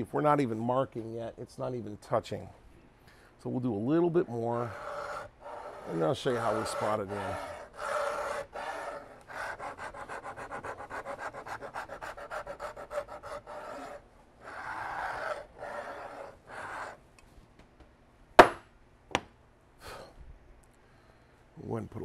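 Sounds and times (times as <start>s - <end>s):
hand rasp cutting wood: 4.6s - 17.0s
sharp knocks: 18.4s - 19.3s.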